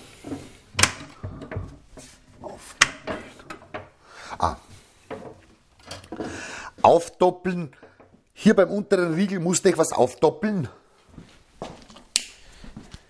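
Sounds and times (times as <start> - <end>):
wood rubbing: 0.0 - 7.0
wooden cabinet doors clacking: 0.3 - 4.0.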